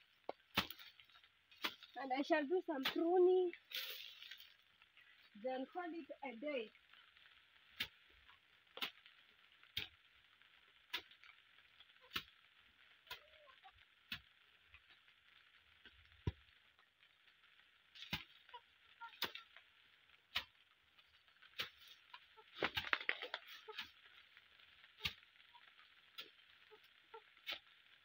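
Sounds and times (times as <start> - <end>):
steady high hiss: 0.0 - 28.0
hand hoe chopping into soil: 0.3 - 2.0, 2.8 - 4.5, 7.8 - 8.0, 8.7 - 9.1, 10.9 - 11.3, 18.0 - 18.4, 19.0 - 19.5, 20.3 - 20.5, 21.5 - 24.0, 25.0 - 25.2, 27.4 - 27.6.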